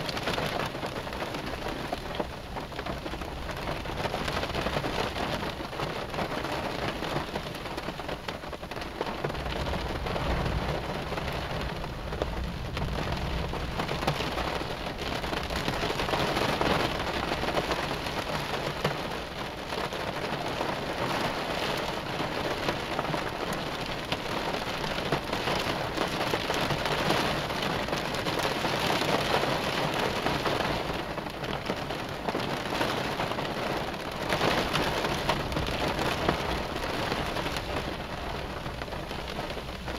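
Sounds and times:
heavy rain on a car: 0.0s - 39.9s
low rumble of thunder: 9.0s - 18.3s.

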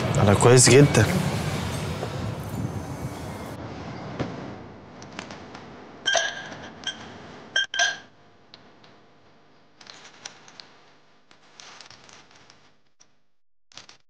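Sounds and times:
glass clinks: 6.1s - 8.1s.

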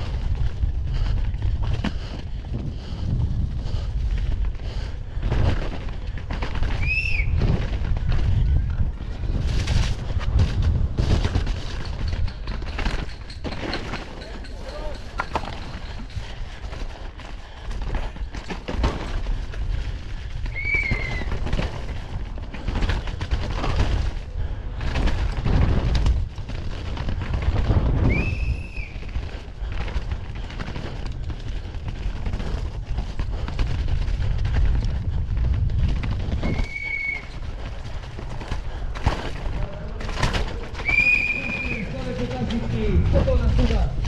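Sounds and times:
bike rattling over bumps: 0.0s - 44.0s
wind buffeting microphone: 0.0s - 44.0s
high squeals: 36.4s - 37.4s.

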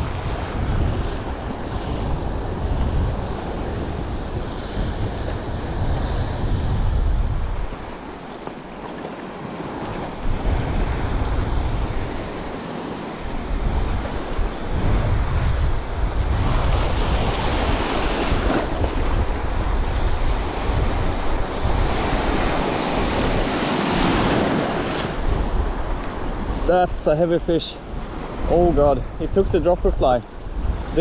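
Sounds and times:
wind buffeting microphone: 0.0s - 31.0s
small waves breaking: 7.4s - 19.8s, 20.4s - 26.9s.

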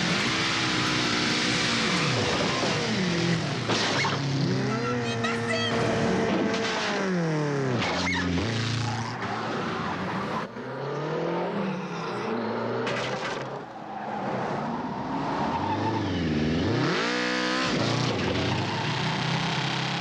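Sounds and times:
motorcycle engine revving: 0.0s - 9.2s, 15.4s - 20.0s.

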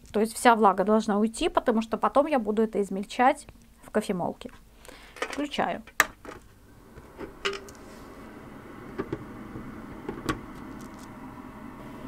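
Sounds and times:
fan motor humming: 6.0s - 12.0s.

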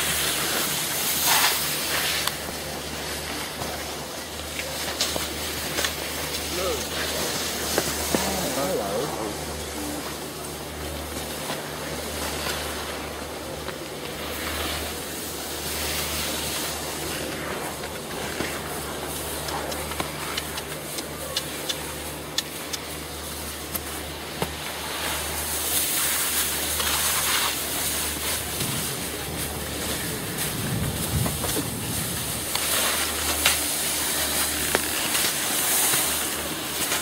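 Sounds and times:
skis hissing over packed snow: 0.0s - 37.0s
wind rushing over microphone: 30.0s - 32.5s.

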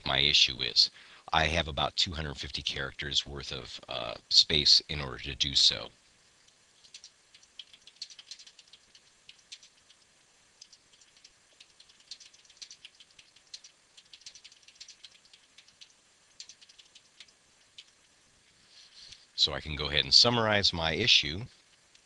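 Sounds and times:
typing on computer keyboard: 6.8s - 10.0s, 10.6s - 17.9s.

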